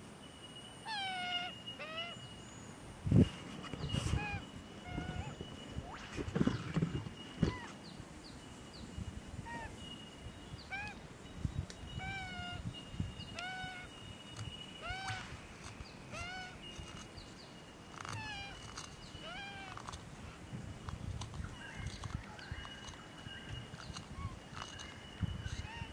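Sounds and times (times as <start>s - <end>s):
young magpie begging calls: 0.9s - 2.2s, 4.1s - 5.4s, 10.6s - 11.0s, 12.0s - 12.7s, 13.3s - 13.9s, 14.8s - 15.3s, 16.1s - 16.6s, 18.0s - 19.8s.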